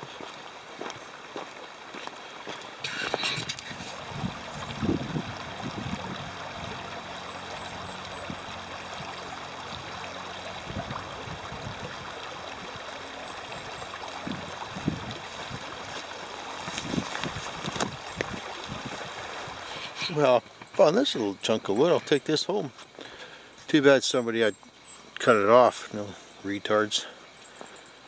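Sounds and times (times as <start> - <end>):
footsteps on a log: 0.0 - 5.0, 14.8 - 19.0
creek trickling over stones: 0.0 - 27.9.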